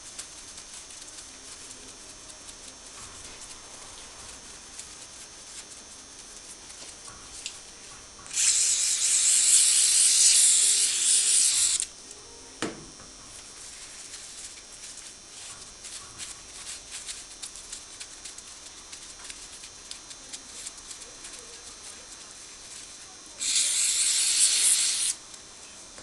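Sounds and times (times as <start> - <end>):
aerosol spray can hissing: 8.3 - 11.9, 18.9 - 25.2
paper towel rustling: 13.5 - 19.6.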